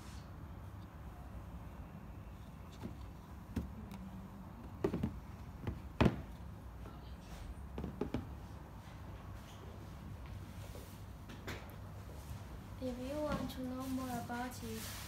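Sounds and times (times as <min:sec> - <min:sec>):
sandals tapping on cardboard: 0:04.7 - 0:06.4, 0:07.7 - 0:08.4.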